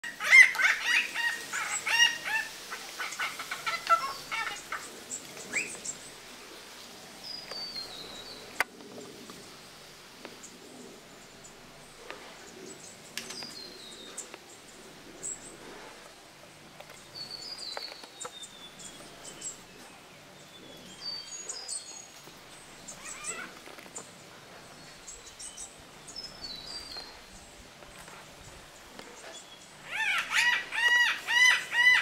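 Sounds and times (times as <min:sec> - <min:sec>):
birds calling: 0:00.0 - 0:06.3, 0:10.3 - 0:32.0.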